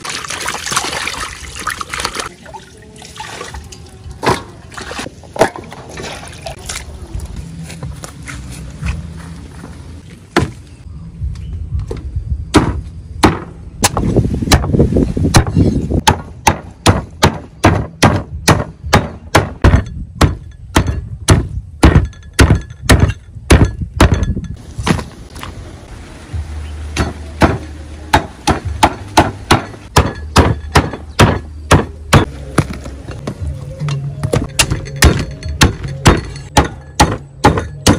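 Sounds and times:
cleaver chopping on wooden block: 15.4s - 24.2s, 27.0s - 32.9s.

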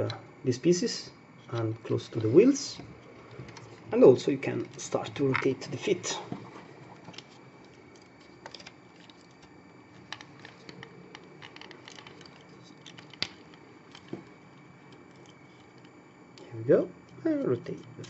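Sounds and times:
plastic toy parts clicking: 10.1s - 14.1s.

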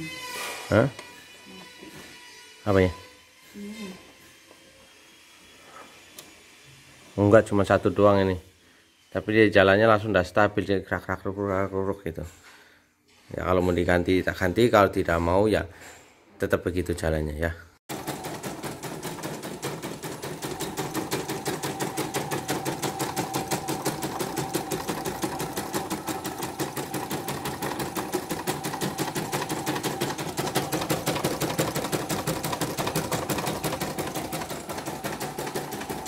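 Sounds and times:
embroidery machine needle clacking: 18.0s - 36.0s.

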